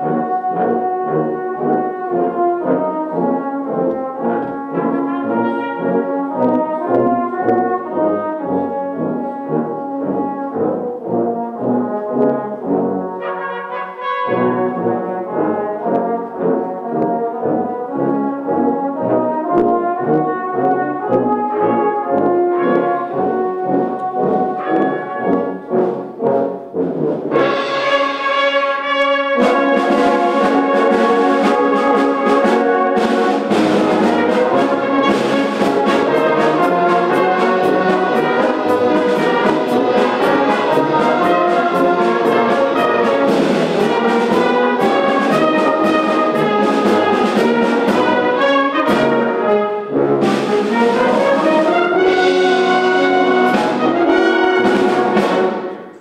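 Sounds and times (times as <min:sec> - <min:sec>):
brass band playing: 0:00.0 - 0:56.0
drum strokes: 0:27.3 - 0:56.0.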